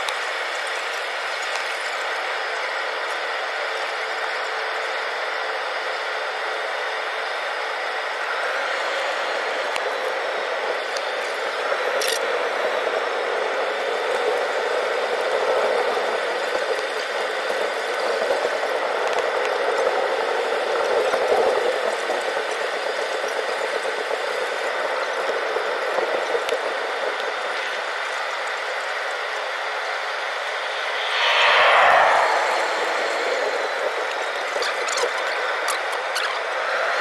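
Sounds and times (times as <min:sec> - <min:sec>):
jet engines hum and rush: 0:28.8 - 0:36.8.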